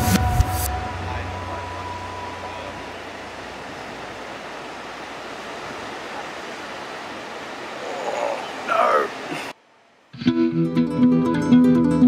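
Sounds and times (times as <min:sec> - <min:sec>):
ocean surf breaking: 0:00.0 - 0:10.2.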